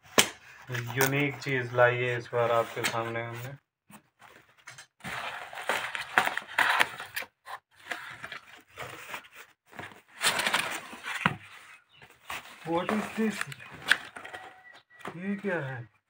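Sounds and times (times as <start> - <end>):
cardboard scraping and rustling: 4.2 - 15.7.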